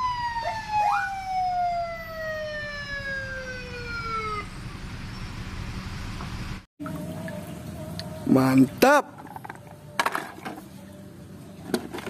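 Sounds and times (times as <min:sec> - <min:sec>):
police siren wailing: 0:00.0 - 0:04.8
low engine and street rumble: 0:00.1 - 0:12.0.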